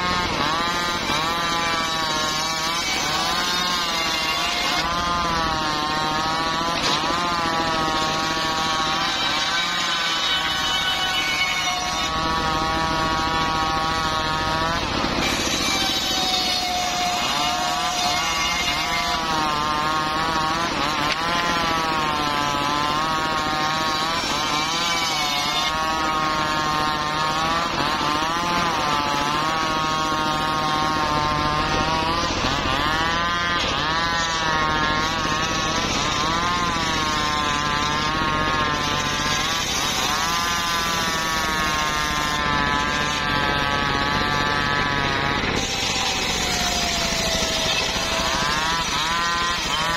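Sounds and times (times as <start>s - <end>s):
circular saw blade whine: 0.0s - 49.9s
engine running: 12.1s - 17.5s, 25.7s - 49.9s.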